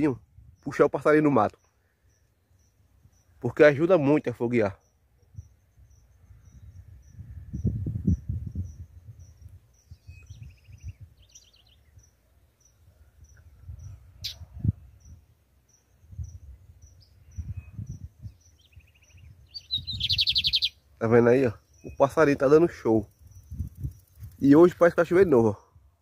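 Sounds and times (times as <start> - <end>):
wind rumble on microphone: 0.2 - 0.7, 5.2 - 12.2, 12.8 - 20.7, 21.8 - 26.0
insect chirping: 1.6 - 3.9, 4.8 - 25.3
bird buzzy trill: 19.5 - 20.8.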